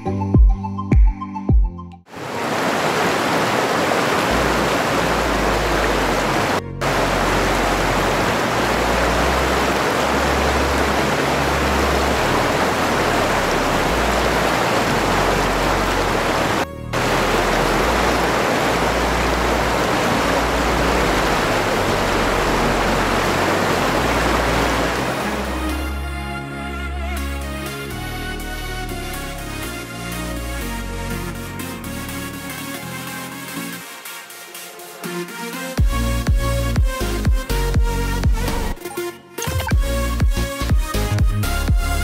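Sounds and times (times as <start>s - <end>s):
waterfall rushing: 2.1s - 26.4s.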